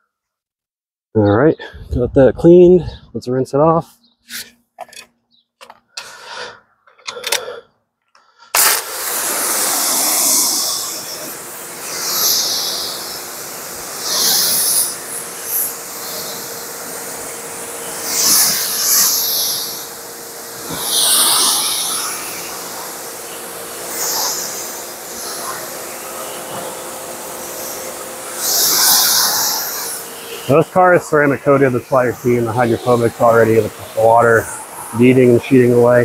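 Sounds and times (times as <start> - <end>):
water spraying onto car: 8.6 - 36.0.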